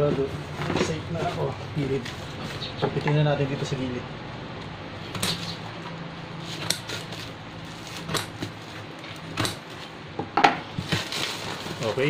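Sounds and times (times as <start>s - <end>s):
scissors snipping: 6.6s - 7.1s.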